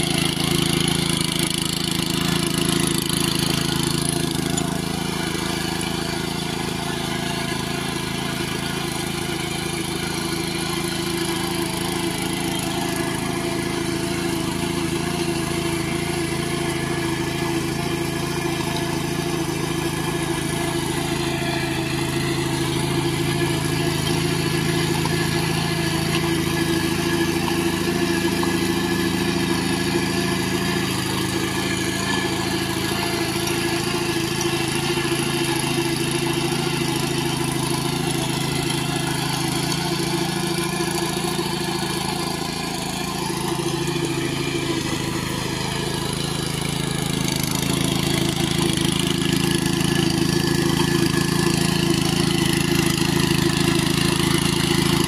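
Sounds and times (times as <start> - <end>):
power tiller engine running: 0.0 - 55.0.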